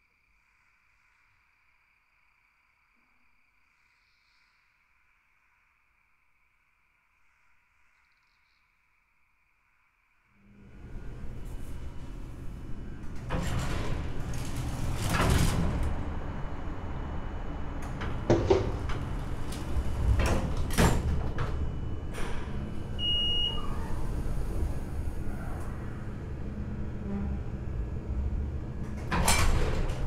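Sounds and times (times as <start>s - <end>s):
low steady rumble: 10.4s - 30.0s
doors sliding and clunking: 10.6s - 30.0s.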